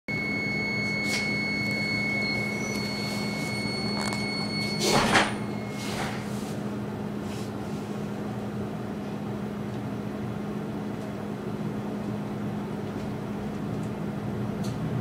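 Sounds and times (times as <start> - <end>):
thin high whine: 0.1 - 6.8
electrical hum: 0.1 - 15.0.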